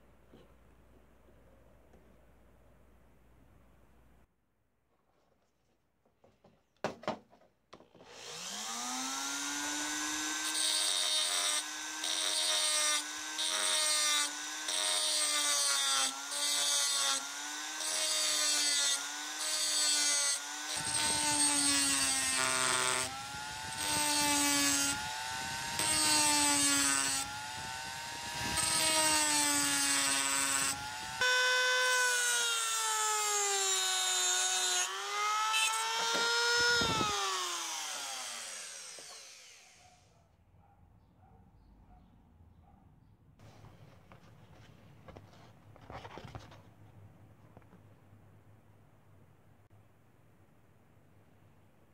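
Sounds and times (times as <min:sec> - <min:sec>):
rotary tool motor whine: 0:08.0 - 0:39.9.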